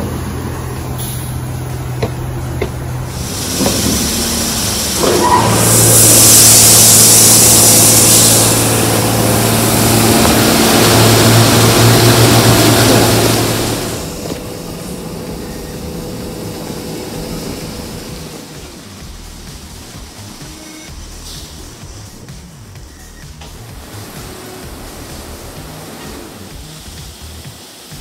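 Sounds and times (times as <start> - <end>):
electric motor hum: 0.0 - 22.3
water spraying with hiss: 0.0 - 28.0.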